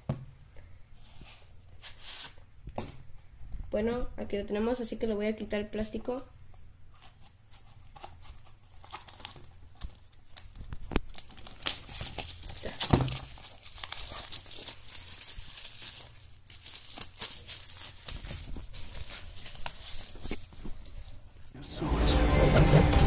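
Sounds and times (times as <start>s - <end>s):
plastic shrink wrap crinkling: 7.0s - 21.5s.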